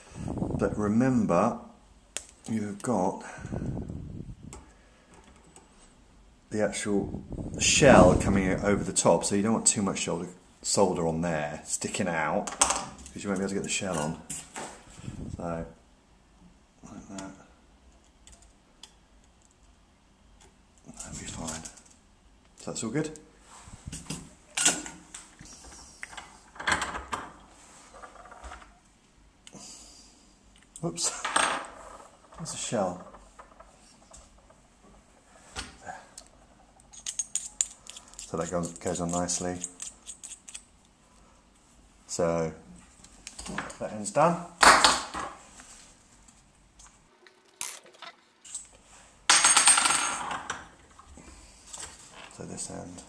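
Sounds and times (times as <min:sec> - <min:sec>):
faint rustling: 0:31.6 - 0:39.7
metal parts clattering and ringing: 0:36.3 - 0:38.8.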